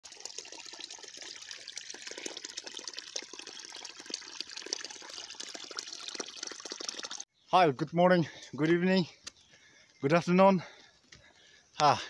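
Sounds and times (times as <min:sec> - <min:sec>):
stream trickling over rocks: 0:00.0 - 0:07.3.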